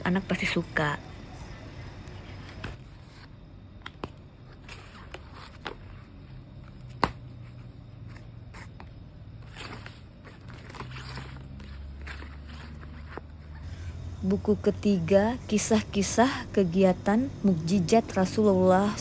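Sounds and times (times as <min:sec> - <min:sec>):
pages flipping: 0:02.3 - 0:13.6.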